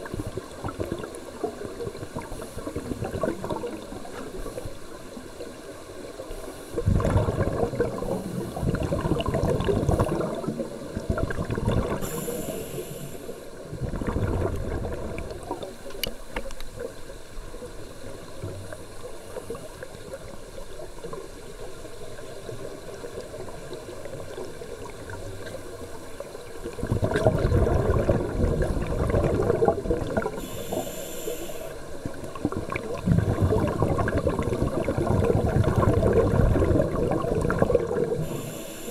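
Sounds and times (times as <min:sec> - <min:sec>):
exhaled bubbles rushing underwater: 0:00.0 - 0:38.9
regulator inhalation hiss: 0:12.0 - 0:13.5, 0:30.3 - 0:31.8, 0:38.2 - 0:38.9.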